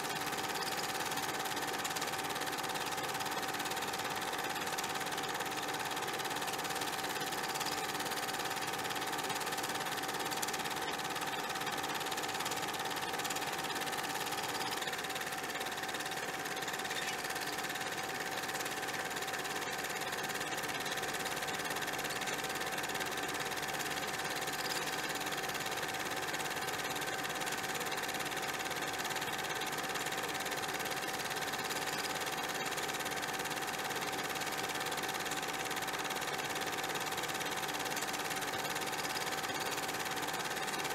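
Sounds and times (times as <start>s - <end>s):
mechanical whirring hum: 0.0s - 40.9s.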